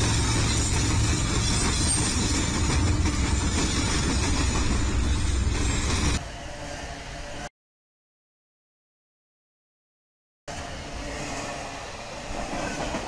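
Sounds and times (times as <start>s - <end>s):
train wheels on rail: 0.0s - 7.2s, 10.5s - 13.0s
diesel locomotive engine rumble: 0.0s - 7.4s.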